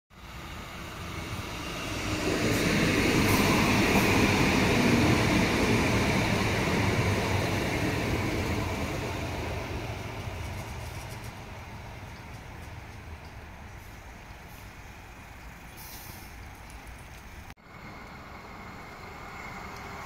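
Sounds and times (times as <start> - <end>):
light-rail train passing: 0.1 - 20.0.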